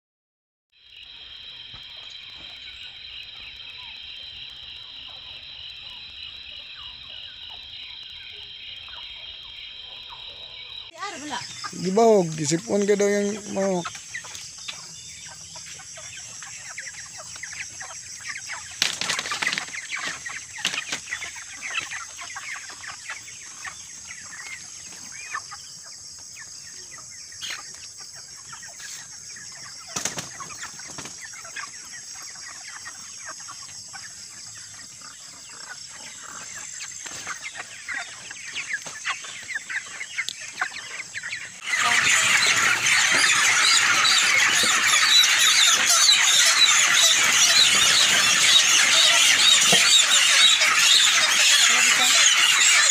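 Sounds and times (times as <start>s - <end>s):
flock of chickens calling: 0.9s - 52.9s
chickens clucking: 1.0s - 52.9s
wings flapping: 18.6s - 22.8s, 29.9s - 31.6s.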